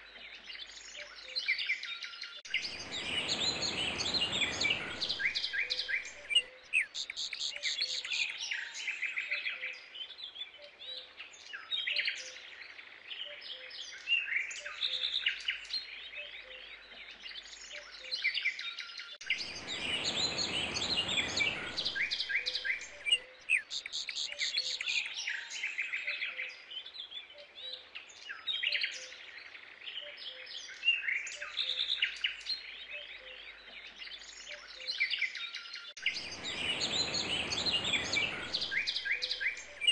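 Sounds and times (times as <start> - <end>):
songbirds chirping and trilling: 0.0 - 39.9.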